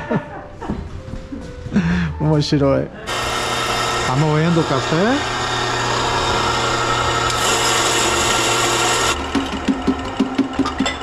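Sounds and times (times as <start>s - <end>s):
coffee grinder whirring: 3.1s - 11.0s.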